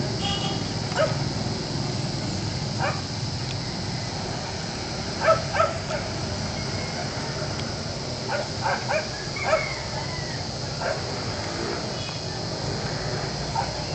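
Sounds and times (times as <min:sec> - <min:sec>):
steady background noise: 0:00.0 - 0:13.9.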